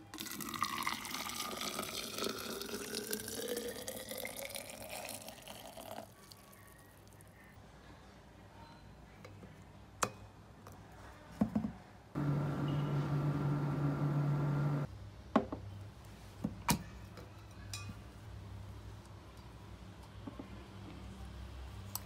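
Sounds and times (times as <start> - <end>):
refrigerator hum: 12.2 - 14.8.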